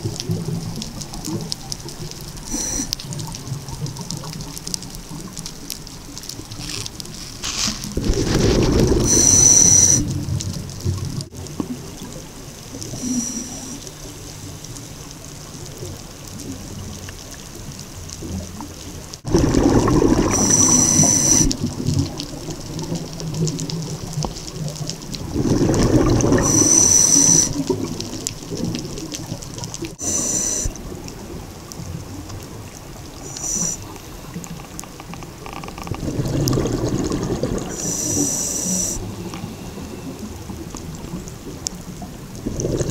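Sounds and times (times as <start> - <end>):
regulator inhalation hiss: 2.5 - 2.9, 9.0 - 10.1, 13.0 - 13.9, 20.3 - 21.5, 26.4 - 27.6, 30.0 - 30.8, 33.2 - 34.4, 37.7 - 40.0
bubbling exhalation: 7.8 - 9.1, 19.3 - 21.9, 25.2 - 26.6, 35.9 - 40.6, 42.4 - 42.9.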